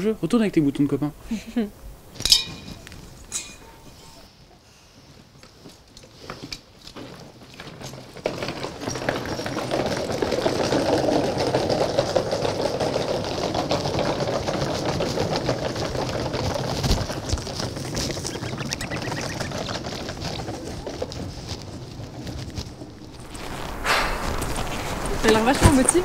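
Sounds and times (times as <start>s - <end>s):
suitcase wheels rattling on planks: 5.5s - 26.0s.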